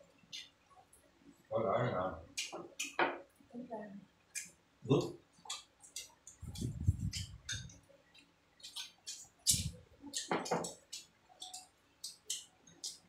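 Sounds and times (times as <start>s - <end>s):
chewing and mouth sounds: 4.3s - 13.0s
chopsticks tapping bowls: 5.4s - 13.0s.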